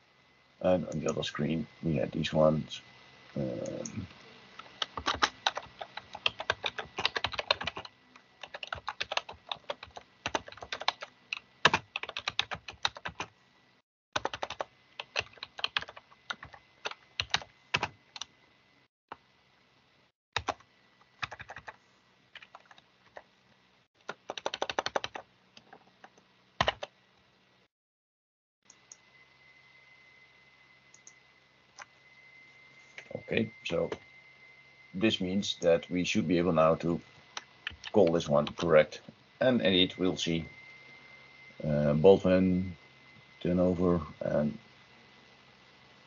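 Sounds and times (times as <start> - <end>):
typing on computer keyboard: 4.8 - 13.3, 14.2 - 18.3, 20.4 - 20.6, 21.2 - 21.8, 22.4 - 23.2, 24.0 - 26.9.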